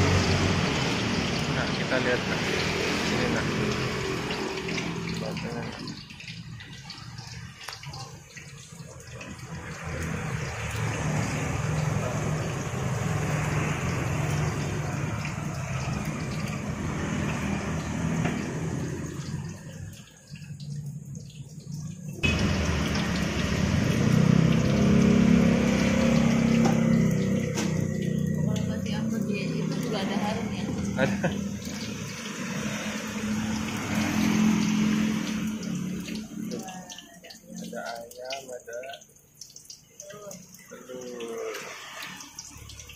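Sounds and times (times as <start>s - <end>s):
motorcycle engine running close: 0.0s - 5.8s, 9.7s - 19.6s, 22.2s - 36.7s
passing vehicles rushing: 0.0s - 8.2s, 8.8s - 37.7s, 41.0s - 42.9s.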